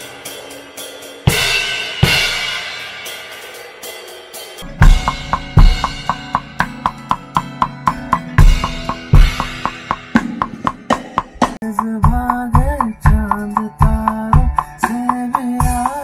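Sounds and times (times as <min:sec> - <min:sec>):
cymbal ringing: 0:00.0 - 0:10.4
kick drum hits: 0:04.6 - 0:14.7.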